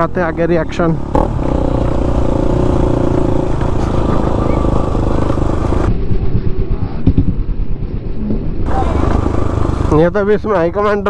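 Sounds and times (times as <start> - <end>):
motorcycle engine running: 0.0 - 5.9, 8.7 - 10.2.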